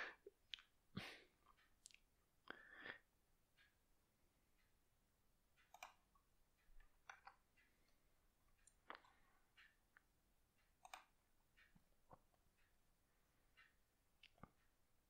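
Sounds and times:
faint clicks: 0:05.6 - 0:12.8.

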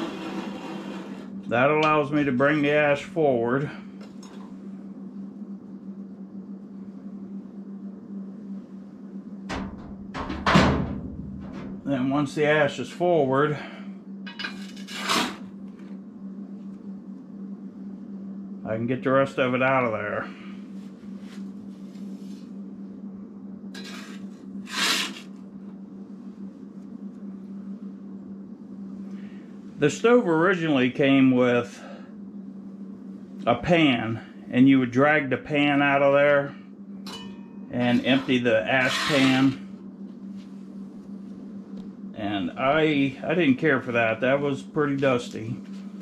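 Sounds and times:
ash tool scraping metal floor: 0:00.0 - 0:01.3, 0:23.8 - 0:25.3, 0:37.8 - 0:39.6
steady low hum: 0:00.0 - 0:46.0.

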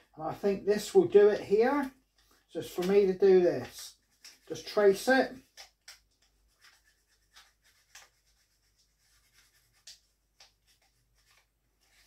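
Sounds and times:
pencil scratching on paper: 0:06.5 - 0:09.9.

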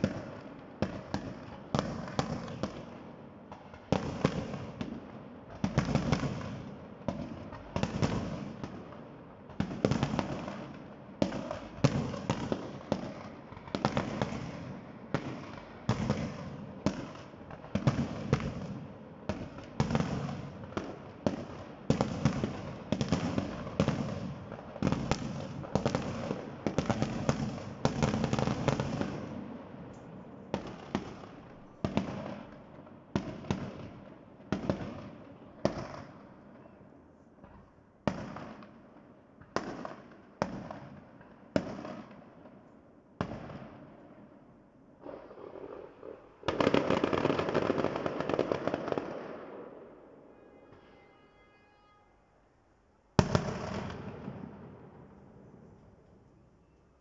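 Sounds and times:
rolling echo: 0:53.2 - 0:56.2.

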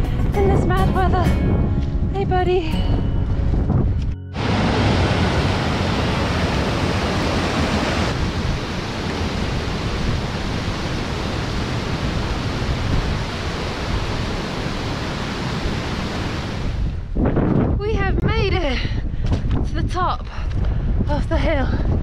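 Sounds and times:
water rushing over rocks: 0:04.4 - 0:16.8.

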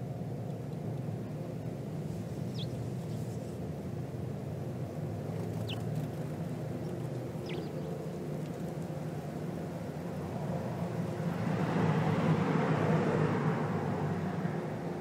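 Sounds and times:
low background rumble: 0:00.0 - 0:11.6
small birds chirping: 0:00.4 - 0:09.4.

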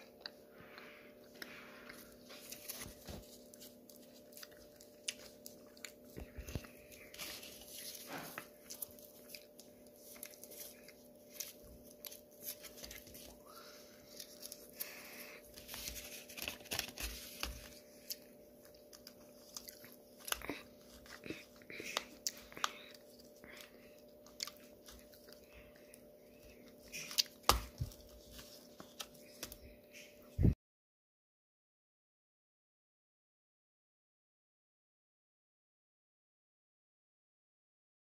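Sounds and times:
foil wrapper crinkling: 0:01.9 - 0:29.7.

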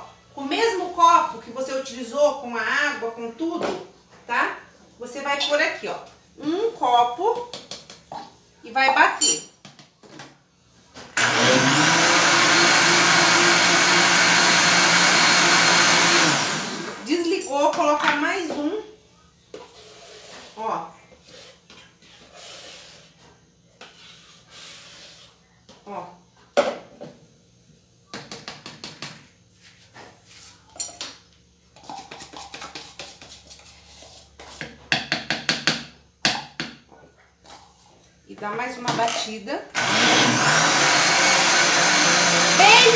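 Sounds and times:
electric blender running: 0:11.2 - 0:17.1, 0:39.7 - 0:42.9.

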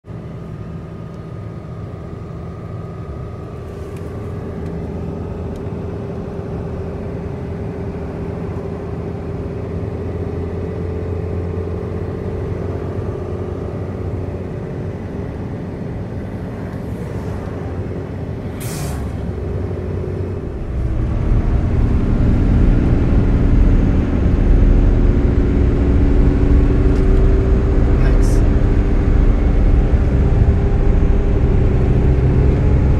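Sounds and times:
tyre and engine rumble: 0:00.1 - 0:32.9
brief hiss: 0:18.5 - 0:19.2.

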